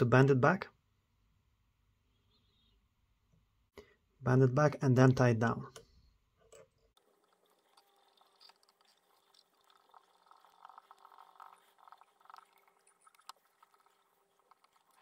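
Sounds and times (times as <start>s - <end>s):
thread winding around hook: 6.4s - 15.0s.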